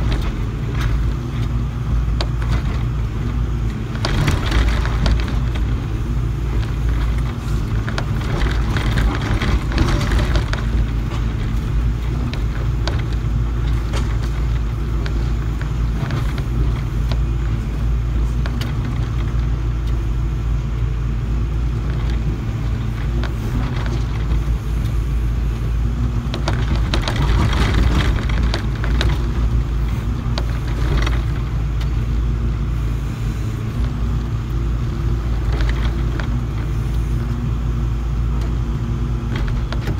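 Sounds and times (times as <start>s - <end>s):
excavator diesel engine running: 0.0s - 39.9s
bucket clicks and scrapes: 6.6s - 17.3s, 26.2s - 31.9s.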